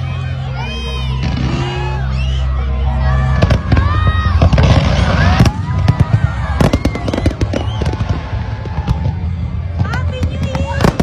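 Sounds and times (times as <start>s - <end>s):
fireworks bangs and crackles: 1.1s - 2.0s, 3.3s - 11.0s.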